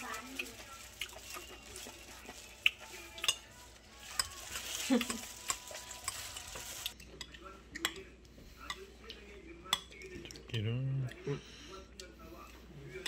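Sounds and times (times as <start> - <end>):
plastic glove crinkling: 0.0 - 7.0.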